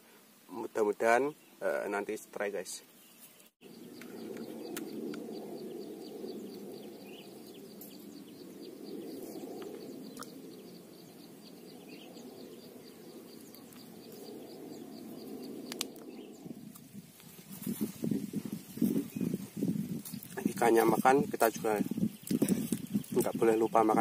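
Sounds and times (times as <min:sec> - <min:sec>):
bird chirping: 0:01.2 - 0:24.0
low rushing noise: 0:03.6 - 0:19.6.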